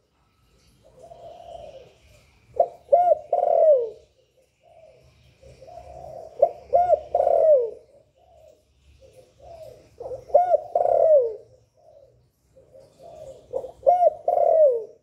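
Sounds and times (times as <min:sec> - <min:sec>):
dove cooing: 0:00.8 - 0:15.0.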